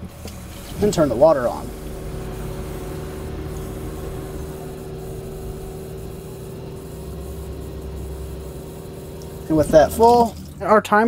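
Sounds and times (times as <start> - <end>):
water pump humming: 0.0 - 11.0
tap water flowing into bottle: 0.1 - 0.9, 9.0 - 10.7.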